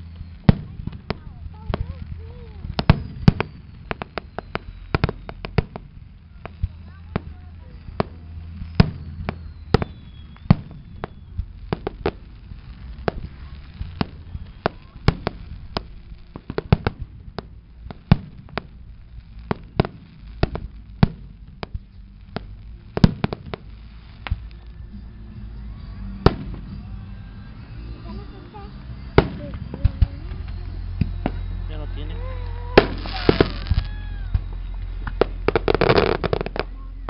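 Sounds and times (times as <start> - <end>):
low rumble: 0.0 - 37.0
firework shells bursting: 28.1 - 36.7.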